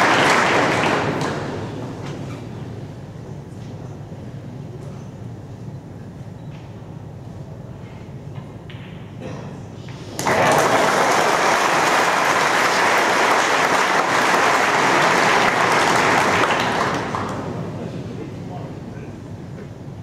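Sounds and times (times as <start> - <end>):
audience applauding: 0.0 - 1.4, 10.2 - 17.6.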